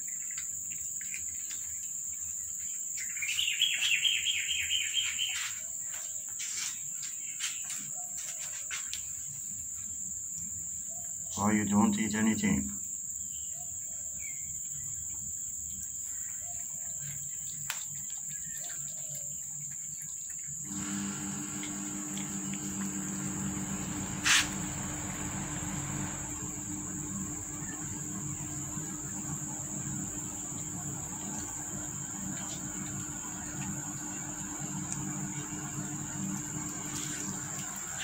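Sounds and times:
insects droning: 0:00.0 - 0:38.0
low hum: 0:20.7 - 0:38.0.

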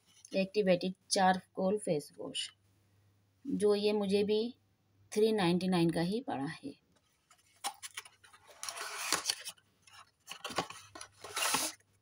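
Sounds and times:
clicks and taps of packaging: 0:09.2 - 0:11.3.

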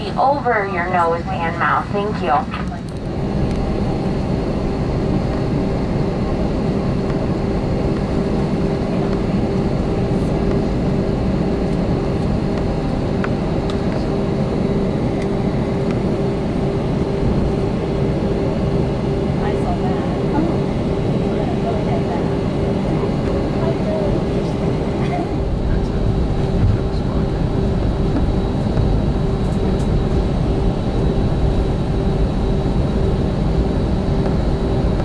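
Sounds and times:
jet engine drone in cabin: 0:00.0 - 0:35.0
low rumble: 0:22.9 - 0:35.0.

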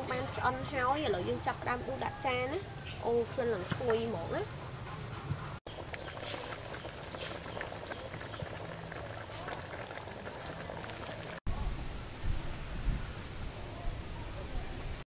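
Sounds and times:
liquid splashing and bubbling: 0:05.7 - 0:11.5.

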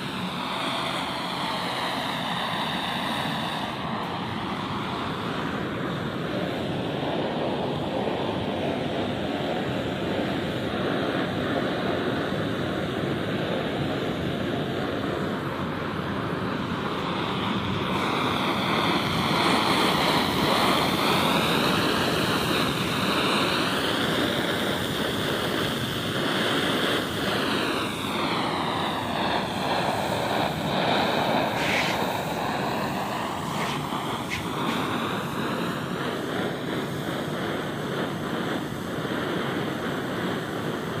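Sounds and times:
blowtorch flame rushing: 0:00.0 - 0:41.0.

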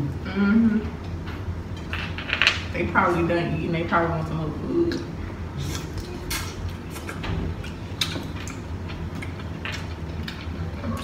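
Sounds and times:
steady low hum: 0:00.0 - 0:11.0
chewing and mouth smacks: 0:05.7 - 0:10.6.

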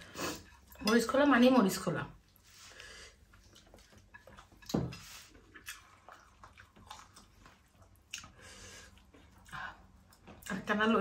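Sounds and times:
soft chewing and mouth clicks: 0:02.1 - 0:10.8.

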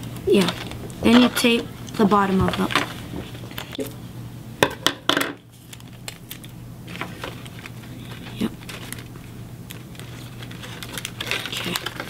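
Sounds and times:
paper crinkling: 0:05.5 - 0:12.0
paper rustling: 0:05.6 - 0:12.0.

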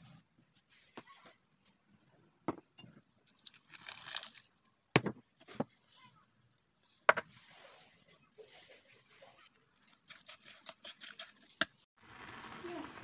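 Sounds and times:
liquid pouring: 0:03.3 - 0:04.7
sugar pouring with a hiss: 0:03.4 - 0:04.5.

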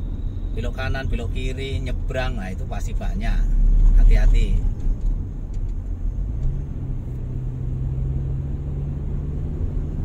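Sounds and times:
engine and tyres rumbling: 0:00.0 - 0:10.0
engine hum rising in pitch: 0:06.1 - 0:10.0.

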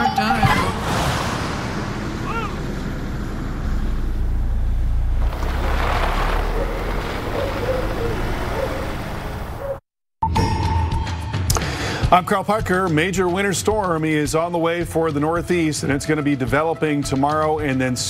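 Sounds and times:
engine and tyre rumble: 0:00.1 - 0:09.8.

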